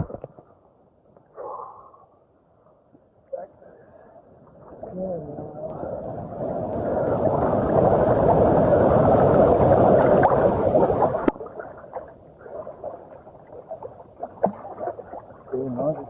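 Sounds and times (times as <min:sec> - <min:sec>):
water rushing over microphone: 0:04.6 - 0:16.0
small water splashes: 0:05.8 - 0:16.0.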